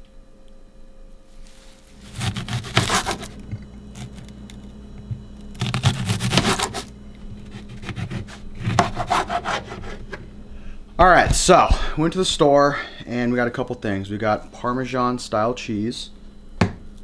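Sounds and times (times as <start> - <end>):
steady low hum: 0.0 - 17.0
knife slicing on cutting board: 2.0 - 3.4, 5.6 - 6.9, 7.5 - 10.1.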